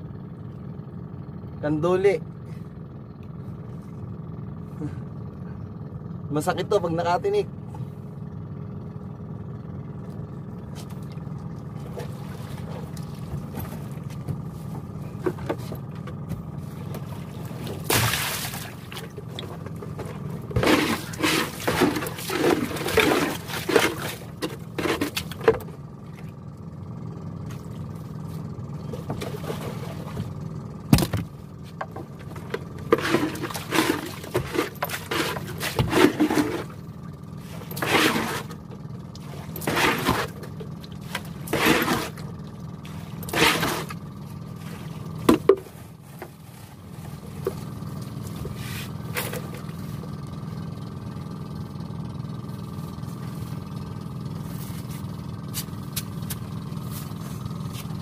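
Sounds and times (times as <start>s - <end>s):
boat engine idling: 0.0s - 58.0s
water splashing: 16.6s - 25.4s
net trap scraping: 20.5s - 25.5s, 32.8s - 36.8s, 37.6s - 38.6s, 39.4s - 42.2s, 43.1s - 44.0s.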